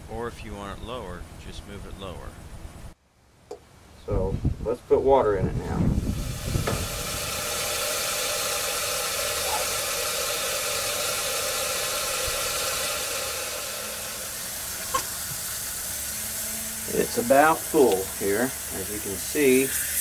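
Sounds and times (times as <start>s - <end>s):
water hissing through float valve: 5.9s - 20.0s.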